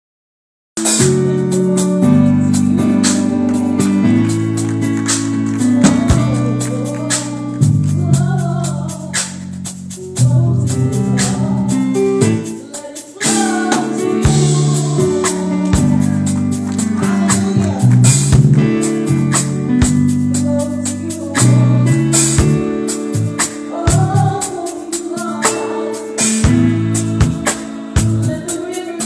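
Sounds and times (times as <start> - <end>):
electronic keyboard chords: 0.8 - 29.0
choir singing: 12.6 - 18.0, 23.6 - 29.0
sharp percussion strokes: 22.2 - 29.0.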